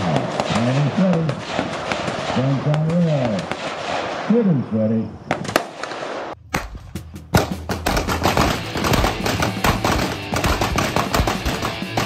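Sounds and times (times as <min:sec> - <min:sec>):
gunshots: 0:00.0 - 0:04.7, 0:05.3 - 0:12.0
fast background music: 0:07.0 - 0:12.0.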